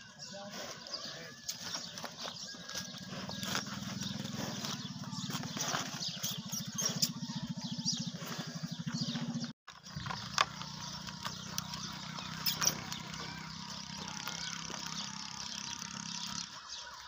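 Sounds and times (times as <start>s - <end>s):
small engine humming: 0.9s - 17.0s.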